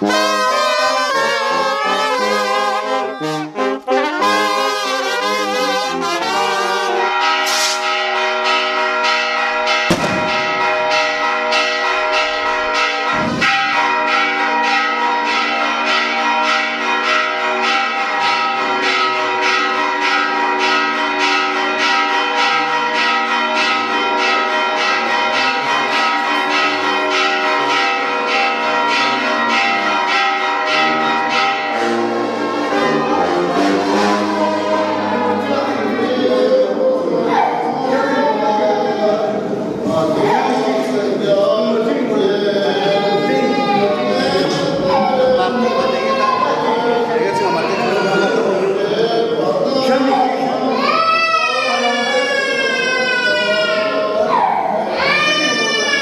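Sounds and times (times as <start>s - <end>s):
brass band playing: 0.0s - 8.9s, 9.8s - 11.4s, 28.9s - 36.5s
church bells ringing rapidly: 0.0s - 56.0s.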